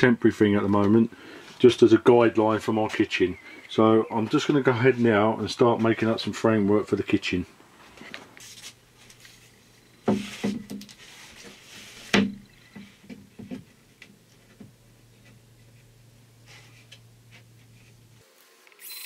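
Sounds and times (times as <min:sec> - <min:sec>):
wooden boards knocking: 0:10.0 - 0:10.9, 0:12.1 - 0:13.7.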